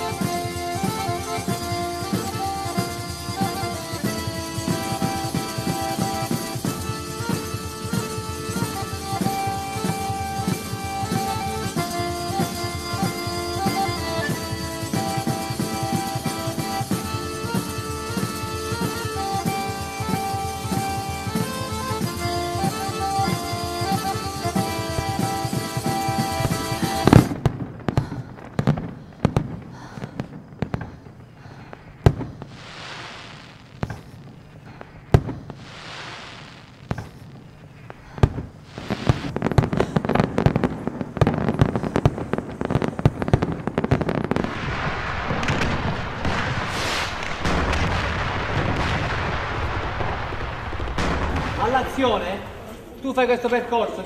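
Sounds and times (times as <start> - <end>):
music: 0.0 - 27.4
fireworks bangs: 0.0 - 54.0
fireworks crackling: 0.0 - 54.0
fireworks hissing bursts: 0.0 - 54.0.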